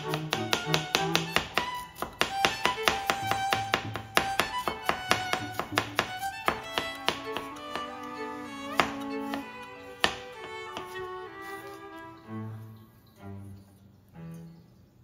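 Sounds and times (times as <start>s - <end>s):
knife chopping on cutting board: 0.0s - 8.0s, 8.8s - 9.4s, 10.0s - 11.6s
background music with violin: 0.0s - 14.8s.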